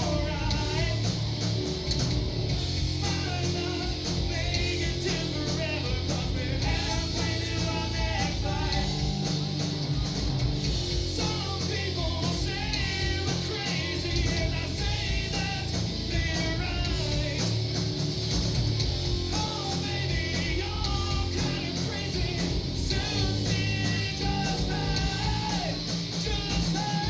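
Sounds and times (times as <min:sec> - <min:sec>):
man singing: 0:00.0 - 0:01.1, 0:03.0 - 0:09.2, 0:11.2 - 0:17.6, 0:19.3 - 0:27.0
drums: 0:00.0 - 0:27.0
electric guitars: 0:00.0 - 0:27.0.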